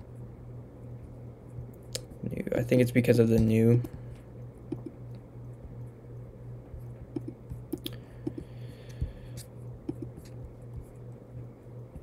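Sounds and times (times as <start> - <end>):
low electrical hum: 0.0 - 12.0
computer mouse clicks: 4.7 - 5.0, 7.1 - 8.5, 9.4 - 10.4.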